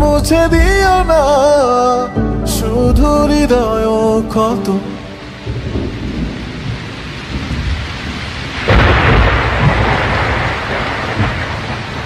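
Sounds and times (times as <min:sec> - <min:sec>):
steady rain: 0:03.8 - 0:12.0
thunder rumbling: 0:04.9 - 0:12.0.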